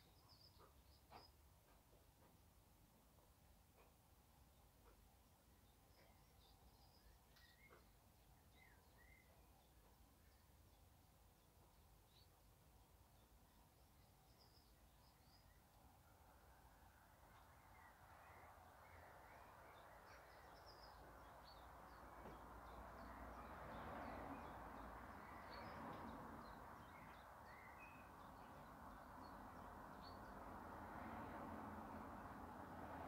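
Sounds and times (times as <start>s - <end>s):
bird chirps: 5.6s - 10.9s, 17.3s - 30.4s.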